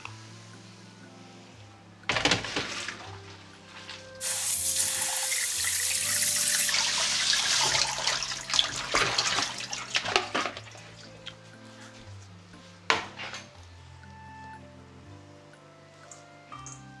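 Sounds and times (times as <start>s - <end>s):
water splashing over sprouts: 4.2s - 11.4s.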